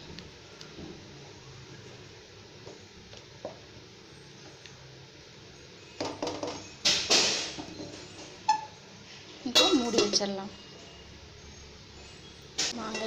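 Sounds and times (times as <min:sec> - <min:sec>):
metal kitchenware clattering: 0:06.2 - 0:08.8, 0:09.5 - 0:10.5, 0:12.6 - 0:13.0.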